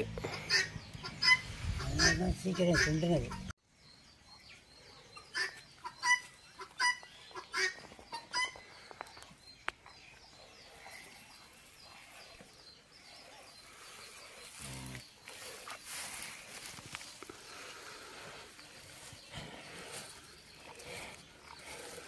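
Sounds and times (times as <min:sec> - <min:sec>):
chicken calling: 0:00.2 - 0:03.5, 0:05.2 - 0:08.7.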